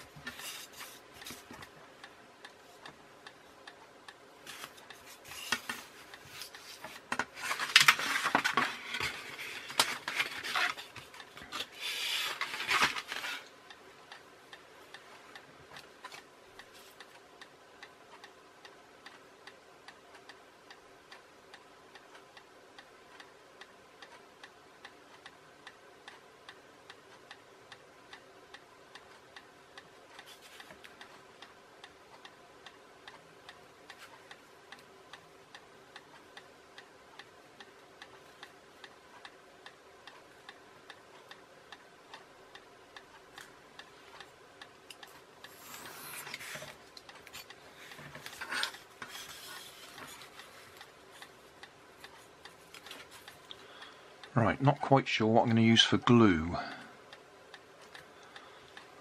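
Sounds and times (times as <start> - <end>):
steady ticking: 1.1 - 5.1.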